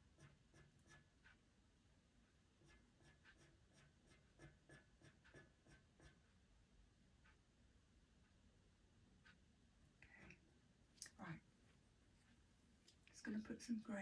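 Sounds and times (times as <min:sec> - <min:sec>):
pencil scratching on paper: 0:00.0 - 0:01.4, 0:02.6 - 0:06.4.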